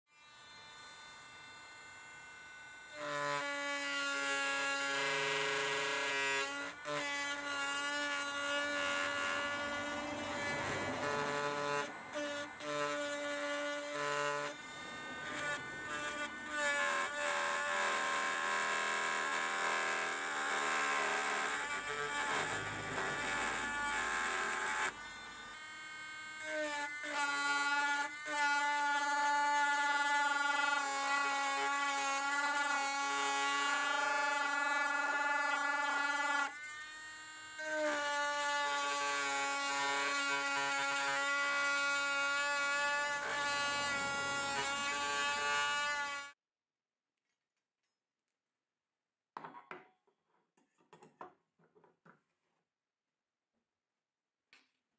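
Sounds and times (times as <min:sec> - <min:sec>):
rotary tool whining on stone: 0:00.1 - 0:46.4.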